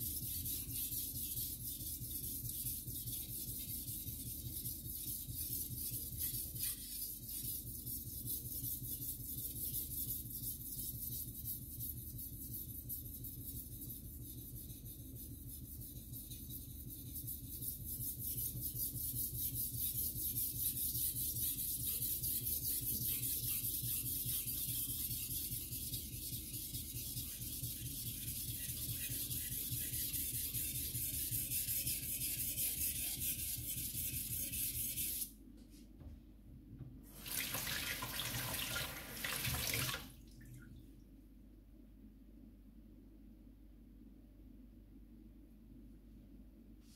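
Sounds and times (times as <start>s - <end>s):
water running from tap into sink: 37.2s - 40.1s.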